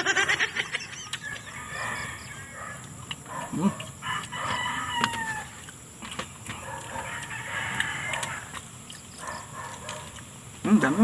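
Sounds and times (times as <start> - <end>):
rooster crowing: 1.2 - 2.7, 4.0 - 5.6, 6.9 - 8.5.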